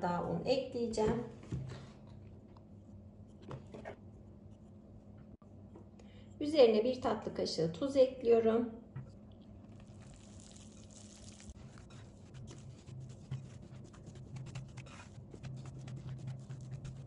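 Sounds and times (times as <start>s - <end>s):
hands kneading wet dough: 9.4s - 17.0s
whisk stirring in a bowl: 9.7s - 17.0s.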